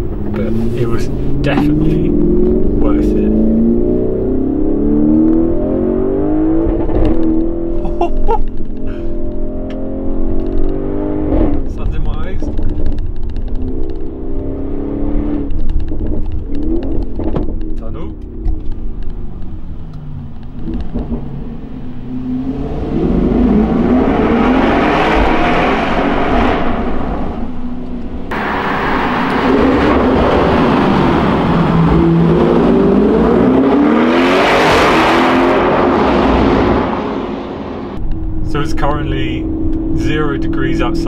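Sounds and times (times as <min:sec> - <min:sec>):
car engine accelerating hard: 0:00.0 - 0:41.0.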